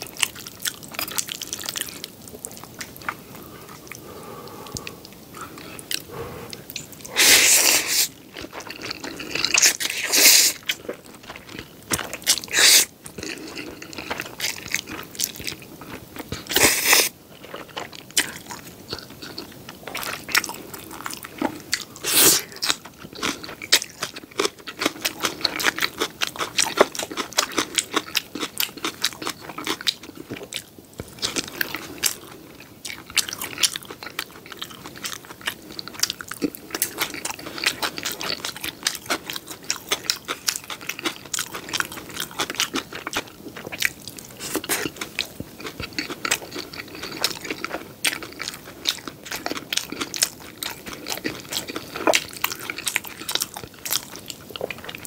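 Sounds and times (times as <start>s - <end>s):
wet chewing and crunchy bites: 0.0s - 55.0s
noodle slurping: 5.9s - 8.2s.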